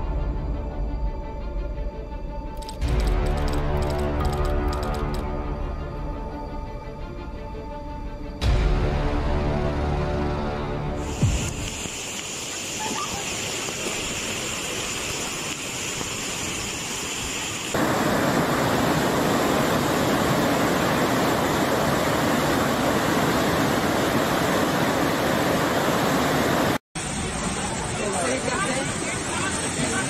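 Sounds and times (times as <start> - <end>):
heavy rain: 10.7 - 30.0
floodwater rushing: 10.9 - 30.0.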